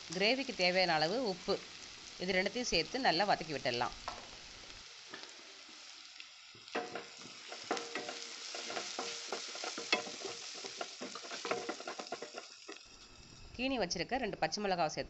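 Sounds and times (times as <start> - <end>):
onions sizzling in oil: 0.0 - 14.8
spatula scraping and knocking pan: 6.8 - 12.8.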